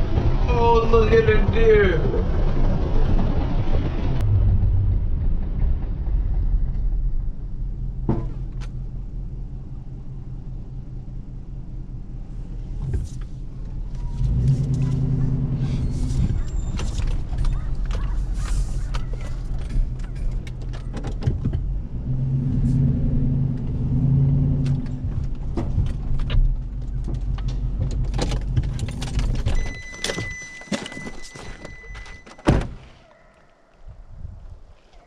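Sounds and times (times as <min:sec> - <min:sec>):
pickup engine droning: 0:02.0 - 0:31.9
car door shutting: 0:27.8 - 0:33.0
electronic door-open chime: 0:29.5 - 0:32.4.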